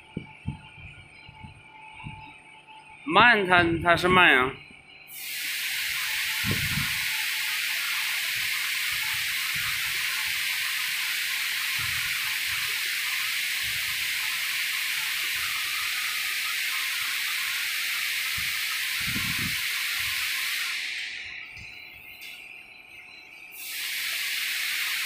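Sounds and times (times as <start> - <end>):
steady hiss: 5.1 - 22.6, 23.3 - 25.0.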